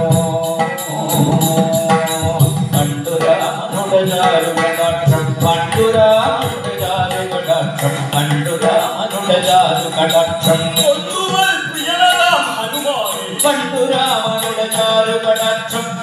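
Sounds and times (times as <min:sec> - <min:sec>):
drum beat: 0:00.0 - 0:12.5
person singing in chanting style: 0:00.0 - 0:16.0.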